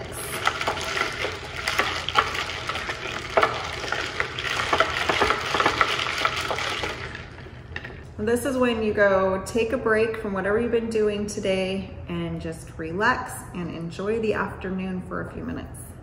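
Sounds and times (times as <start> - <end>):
ice cubes clinking in a glass jar: 0.0 - 8.0.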